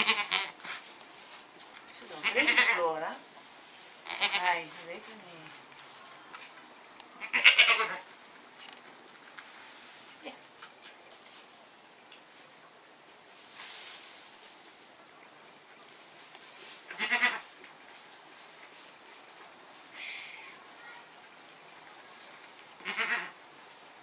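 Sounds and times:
goat bleating: 0.0 - 0.6, 2.2 - 3.0, 4.1 - 4.8, 7.2 - 8.0, 16.9 - 17.5, 22.8 - 23.4.

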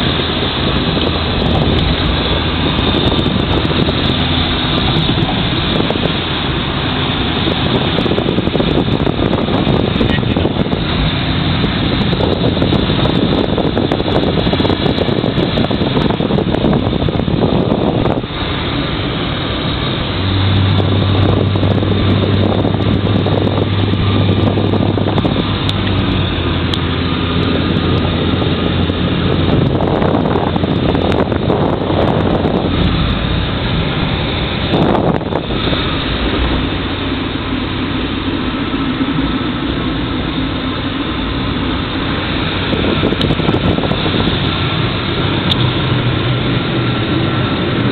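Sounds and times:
car engine: 0.0 - 47.9
low steady hum: 0.0 - 47.9
road and wind noise: 0.0 - 47.9.

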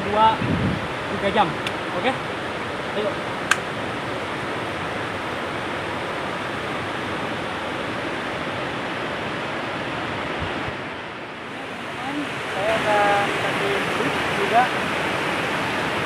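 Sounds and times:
river rushing over rocks: 0.0 - 16.0.

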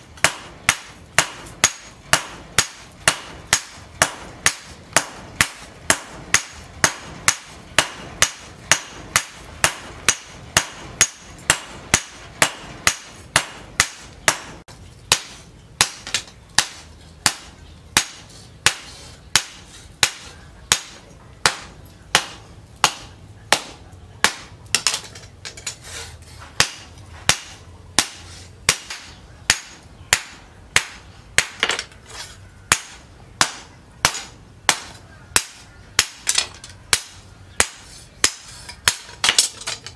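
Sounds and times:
hammer ringing on anvil: 0.2 - 14.5, 26.6 - 31.7.

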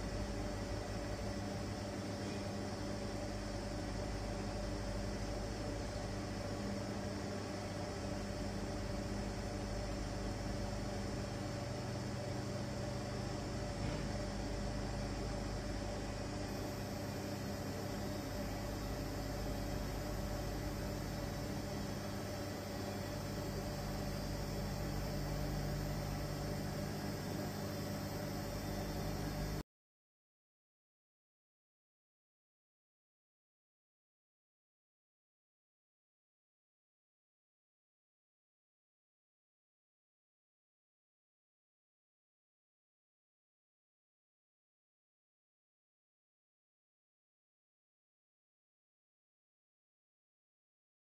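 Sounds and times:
vacuum pump humming: 0.0 - 29.6.

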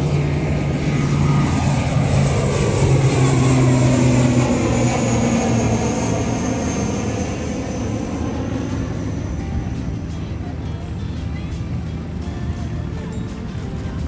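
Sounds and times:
turboprop airliner drone overhead: 0.0 - 14.0.

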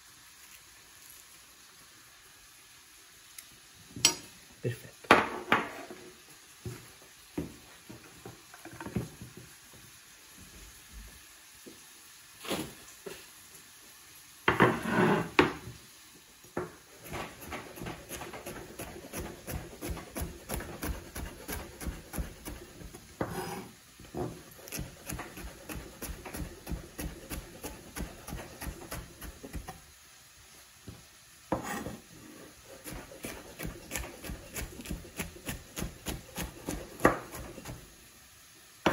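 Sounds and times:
knife slicing on wooden board: 17.0 - 23.7, 31.5 - 32.0.

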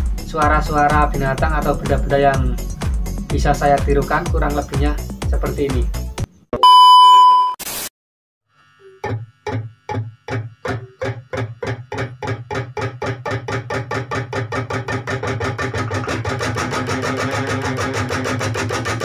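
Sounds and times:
electric guitar plucked pulses: 8.8 - 19.0.

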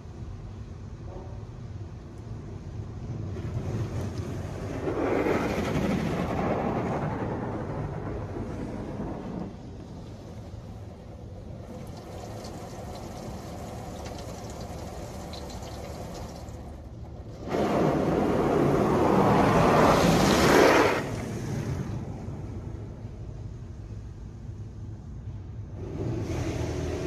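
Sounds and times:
water hissing on car: 10.0 - 21.2
high-pressure water spray: 11.6 - 16.8.

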